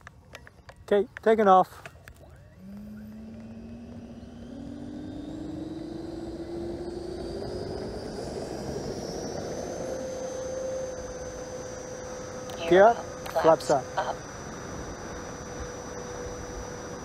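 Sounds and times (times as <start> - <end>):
wheels rolling on runway: 0.0 - 13.2
electric ducted fan whine: 0.0 - 17.0.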